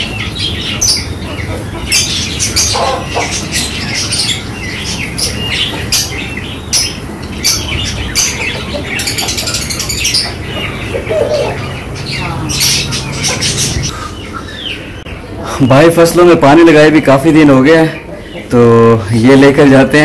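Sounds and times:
bird chirps and squawks: 0:00.0 - 0:15.8
low background noise: 0:00.0 - 0:20.0.

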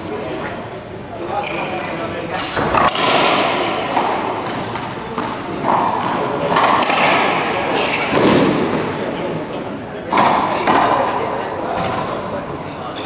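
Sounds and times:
racquet hitting ball: 0:01.8 - 0:09.4, 0:10.1 - 0:12.3.

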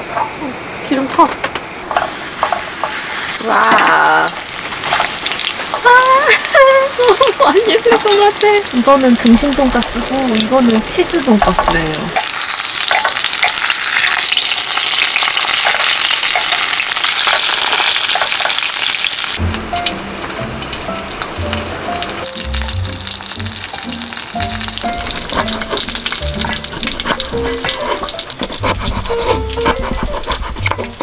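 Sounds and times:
cutlets sizzling in hot oil: 0:01.8 - 0:31.0
background music: 0:19.4 - 0:31.0.

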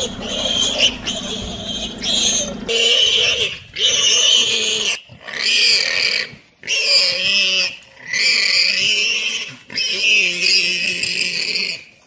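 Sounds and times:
warthog squealing: 0:00.0 - 0:11.9.

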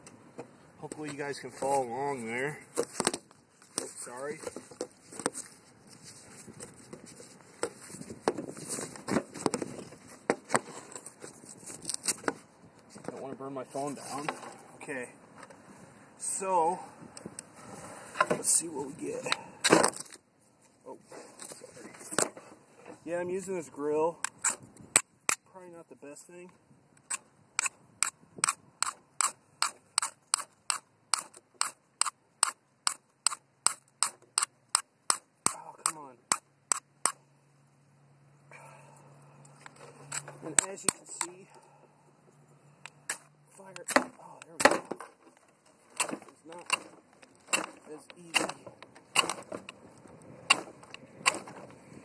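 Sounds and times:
fire steel scraping: 0:17.5 - 0:19.3, 0:39.6 - 0:41.7.

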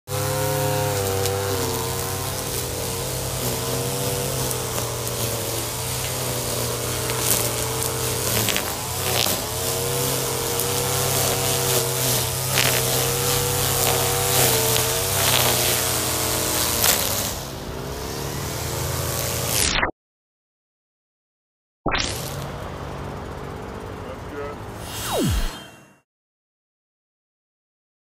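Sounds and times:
string trimmer cutting grass: 0:00.1 - 0:19.9, 0:22.1 - 0:22.5, 0:24.8 - 0:26.0.

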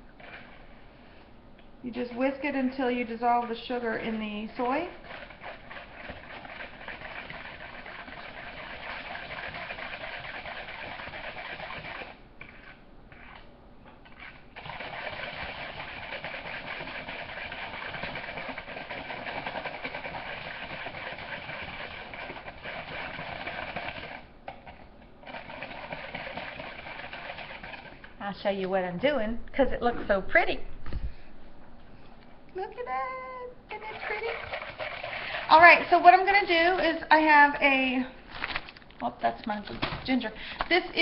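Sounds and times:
wire whisk beating in a bowl: 0:02.1 - 0:12.2, 0:14.6 - 0:24.2, 0:25.3 - 0:28.0.

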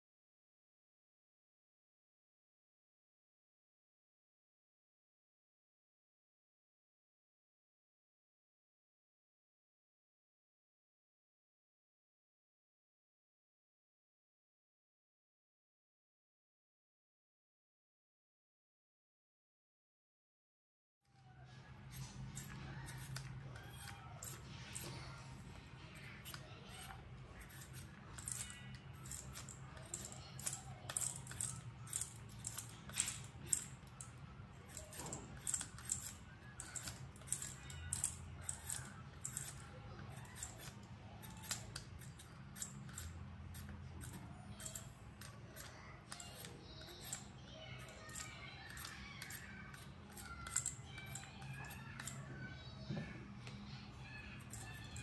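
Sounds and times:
peeler scraping potatoes: 0:21.5 - 0:52.7, 0:53.5 - 0:55.0.

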